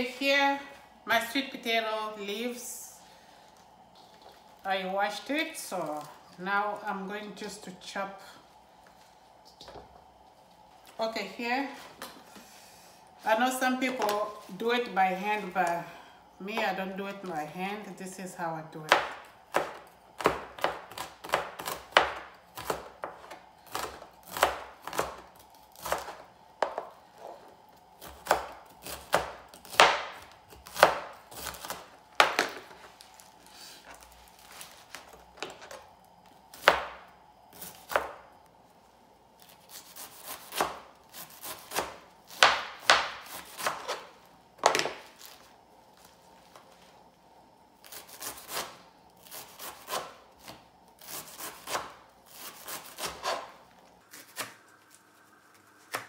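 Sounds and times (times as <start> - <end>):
knife chopping on cutting board: 39.7 - 44.0, 49.3 - 53.5.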